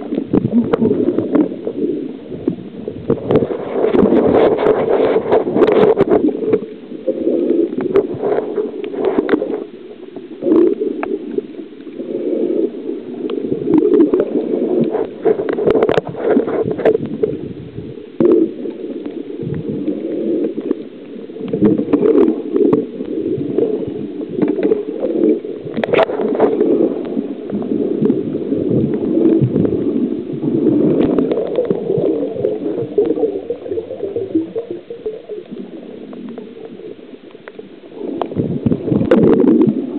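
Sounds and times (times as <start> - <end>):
muffled underwater rushing and gurgling: 0.0 - 39.9
underwater knocks: 28.0 - 29.8.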